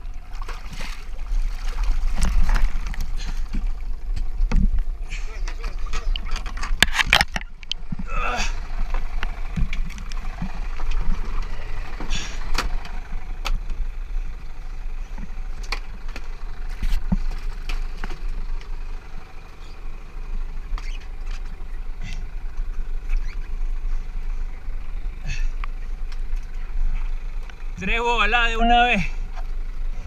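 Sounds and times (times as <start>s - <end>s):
outboard motor idling: 0.0s - 30.0s.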